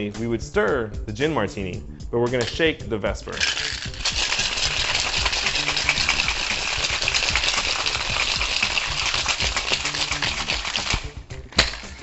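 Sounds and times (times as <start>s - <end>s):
ice rattling in cocktail shaker: 3.3s - 12.0s.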